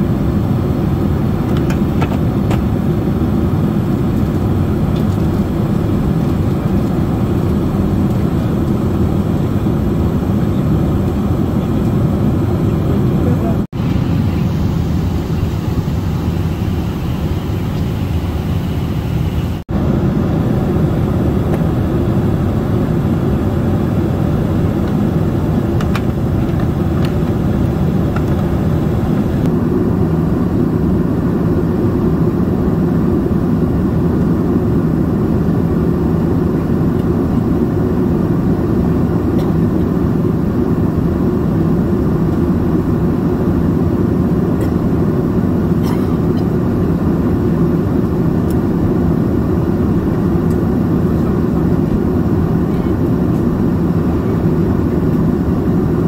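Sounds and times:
airplane cabin engine roar: 0.0s - 56.0s.

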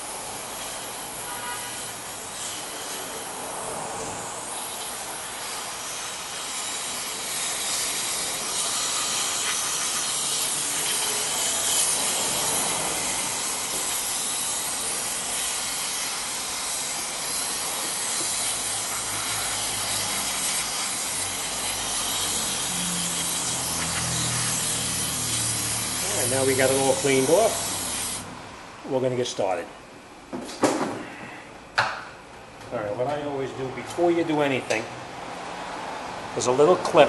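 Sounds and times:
aerosol spray hissing: 4.2s - 28.3s.

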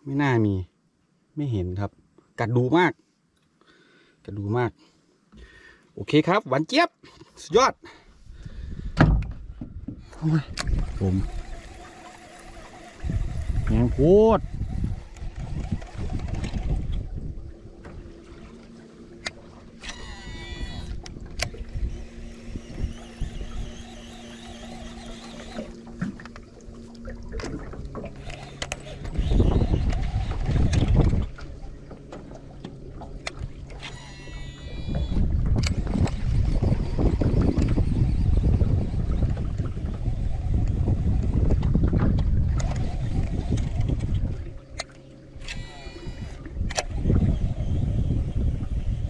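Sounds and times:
wind buffeting microphone: 8.2s - 18.8s, 19.4s - 33.8s, 34.7s - 44.8s, 45.4s - 49.0s
electric boat motor humming: 9.7s - 49.0s.

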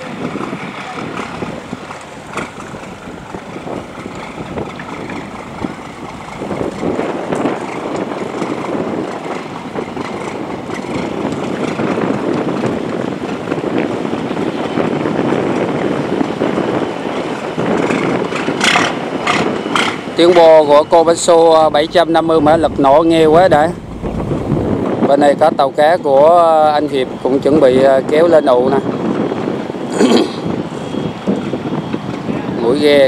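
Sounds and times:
boat diesel engine running: 0.0s - 25.1s.

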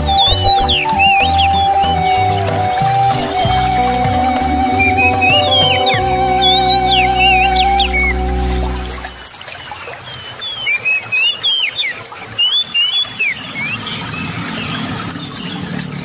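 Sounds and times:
background music: 0.0s - 9.2s
small birds chirping: 0.0s - 16.0s.

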